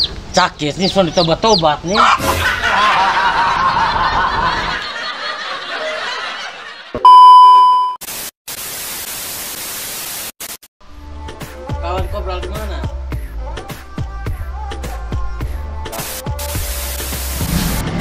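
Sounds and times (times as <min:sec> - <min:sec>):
steady test tone beep: 0:07.0 - 0:08.0
tv static hiss: 0:08.0 - 0:10.7, 0:16.0 - 0:17.4.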